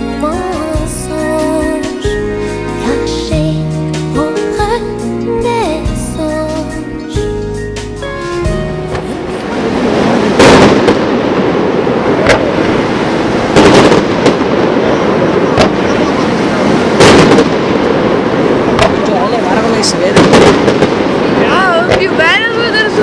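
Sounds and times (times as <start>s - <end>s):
song playing: 0.0s - 11.1s
fireworks crackling: 0.0s - 23.0s
fireworks bangs: 8.3s - 23.0s.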